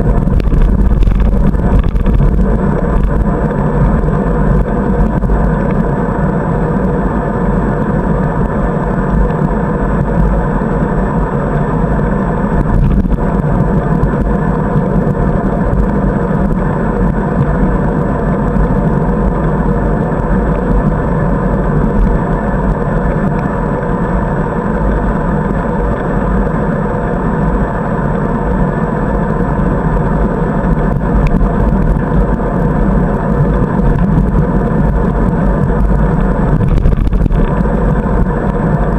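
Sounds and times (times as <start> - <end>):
wind buffeting microphone: 0.0 - 24.0, 29.4 - 38.9.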